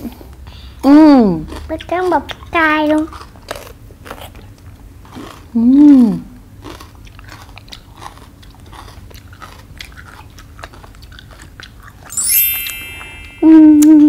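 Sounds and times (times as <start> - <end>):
crunching bell pepper: 1.5 - 5.7, 6.3 - 12.2
glittering chime sweeping upward: 12.1 - 14.0.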